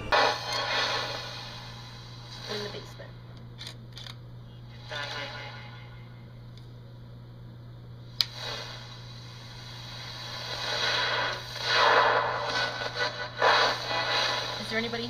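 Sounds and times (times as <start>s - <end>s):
radio static bursts: 0.0s - 3.0s, 4.8s - 5.9s, 8.3s - 15.0s
steady low hum: 0.0s - 15.0s.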